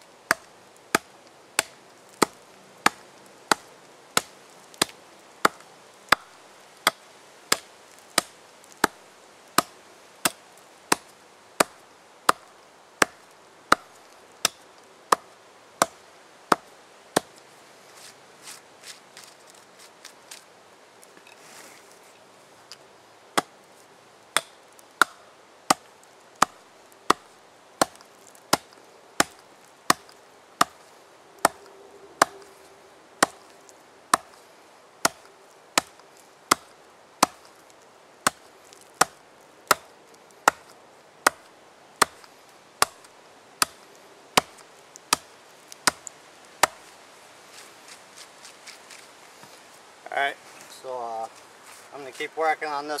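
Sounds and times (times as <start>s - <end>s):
hatchet chopping into log: 0.3s - 9.0s, 24.4s - 25.8s, 26.4s - 27.2s, 27.8s - 30.8s, 35.0s - 37.5s, 39.0s - 39.9s, 40.5s - 43.0s, 43.6s - 43.8s, 44.4s - 46.8s.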